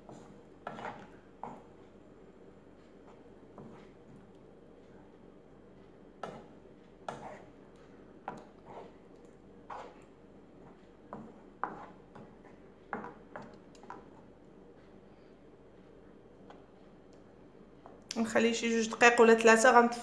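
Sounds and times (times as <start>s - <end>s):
wooden spoon scraping frying pan: 0.0s - 1.7s, 7.1s - 7.5s, 9.7s - 10.0s, 10.6s - 12.6s.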